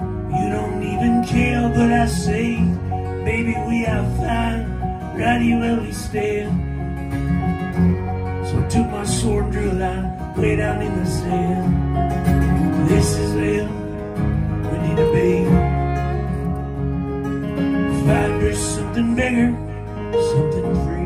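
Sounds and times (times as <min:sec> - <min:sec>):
acoustic guitar strumming: 0:00.0 - 0:21.0
fiddle playing: 0:00.0 - 0:21.0
keyboard playing: 0:00.0 - 0:21.0.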